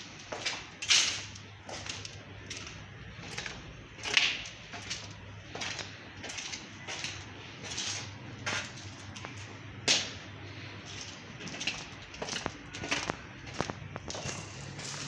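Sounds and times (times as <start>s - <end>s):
footsteps on hard floor: 11.4s - 15.0s.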